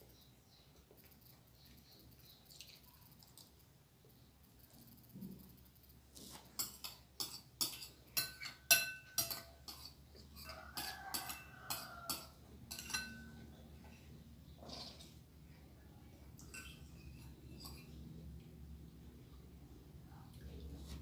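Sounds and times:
cutlery scraping bowls: 0:06.2 - 0:15.3, 0:16.4 - 0:18.0
cutlery clinking against bowls: 0:06.5 - 0:14.0, 0:16.4 - 0:18.0.

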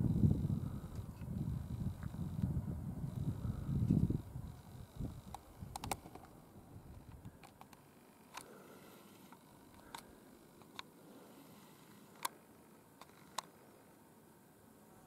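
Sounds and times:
faint clicks: 0:03.9 - 0:08.6, 0:09.2 - 0:12.4, 0:13.0 - 0:13.6.

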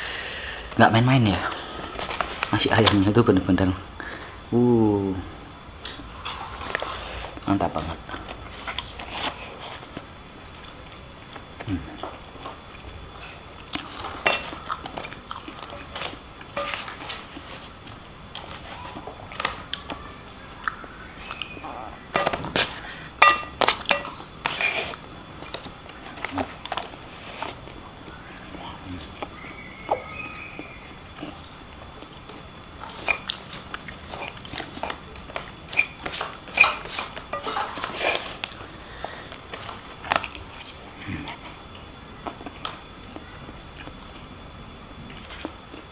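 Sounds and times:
person chewing food: 0:08.1 - 0:44.0, 0:45.1 - 0:45.9
cutlery clinking on a plate: 0:14.2 - 0:14.6, 0:16.5 - 0:17.1, 0:22.2 - 0:24.6, 0:35.7 - 0:38.0.

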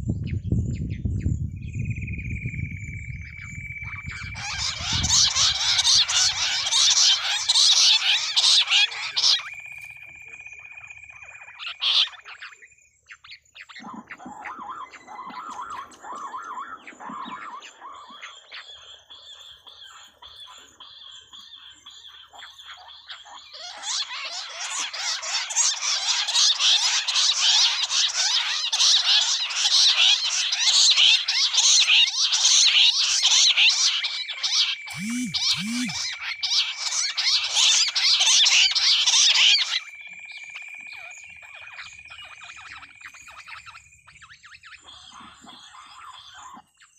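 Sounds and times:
quail chattering chorus: 0:03.4 - 0:12.6, 0:13.2 - 0:46.7.

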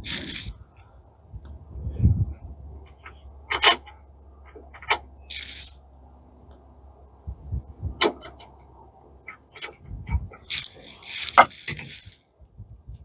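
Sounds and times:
short rustle: 0:10.2 - 0:12.3.

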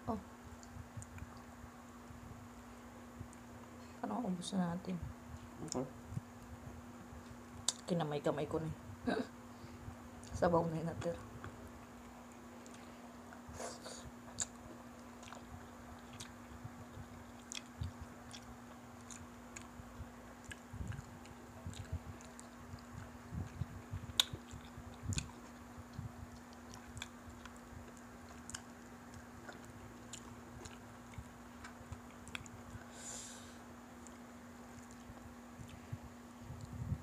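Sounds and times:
faint steady hum: 0:00.0 - 0:37.0
chewing fried chicken: 0:11.4 - 0:32.9, 0:33.8 - 0:36.8.

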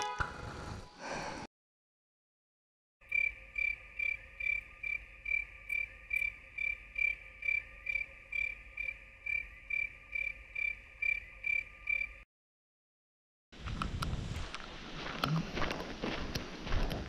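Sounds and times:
cricket chirping: 0:03.0 - 0:12.3.

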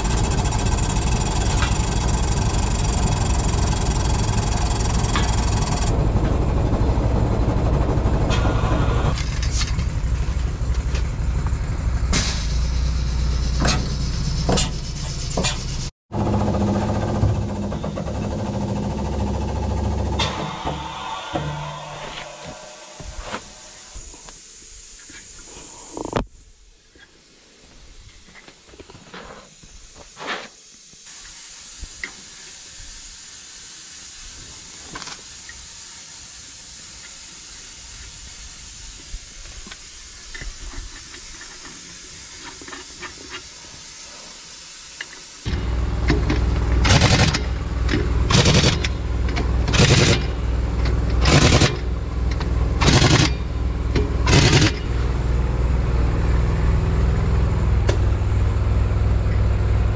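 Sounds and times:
pneumatic impact wrench bursts: 0:00.0 - 0:05.9, 0:12.1 - 0:24.4, 0:44.7 - 0:55.0
engine running steadily: 0:00.0 - 0:24.1, 0:45.4 - 0:59.9
faint hiss: 0:20.5 - 0:45.5.

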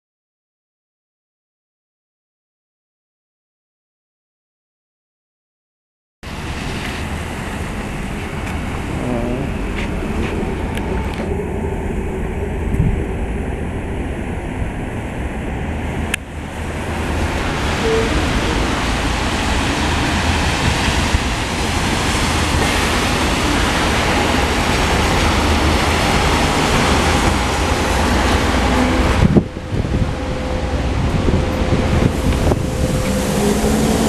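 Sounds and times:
tyres hissing on wet road: 0:06.2 - 0:13.6, 0:15.8 - 0:34.0
wind on microphone: 0:07.7 - 0:34.0.

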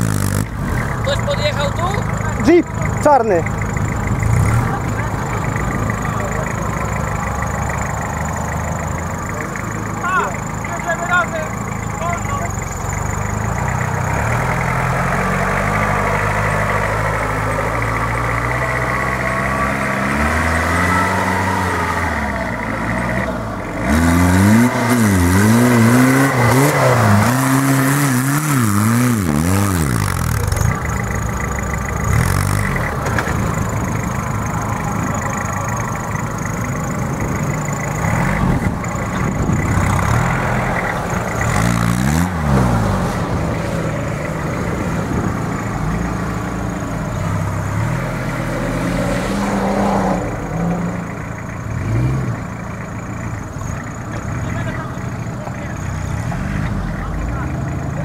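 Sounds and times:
engine revving on sand slope: 0:04.2 - 0:06.6, 0:13.6 - 0:31.1, 0:32.0 - 0:34.1, 0:36.5 - 0:58.0.

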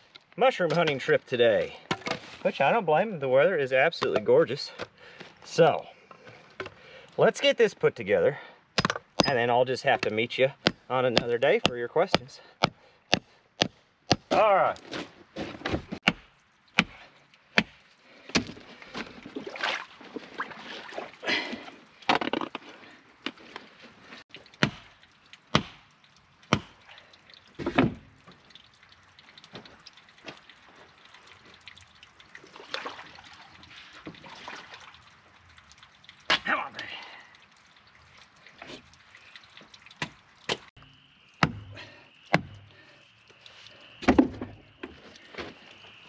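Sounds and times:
hammer knocking wooden stakes: 0:10.0 - 0:14.5, 0:25.5 - 0:25.8, 0:41.4 - 0:41.7, 0:42.3 - 0:42.6.

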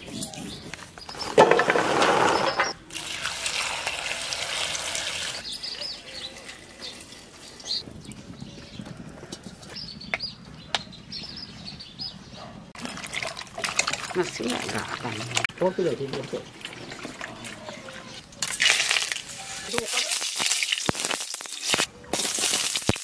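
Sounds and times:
birds chirping: 0:00.0 - 0:02.9, 0:05.3 - 0:18.4
gourd pieces tumbling into pot: 0:01.2 - 0:02.7, 0:12.8 - 0:17.7, 0:18.4 - 0:23.0.

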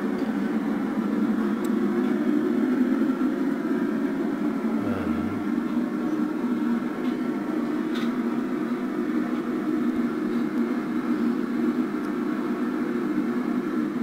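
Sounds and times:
low hum: 0:04.7 - 0:05.9.

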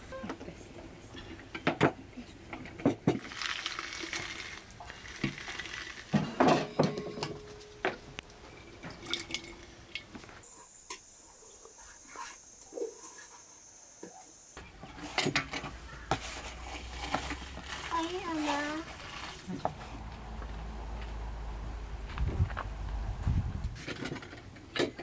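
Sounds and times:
wet squishing of seeds: 0:03.2 - 0:06.2, 0:16.3 - 0:20.5
metal press clinking on basin: 0:06.2 - 0:08.0.

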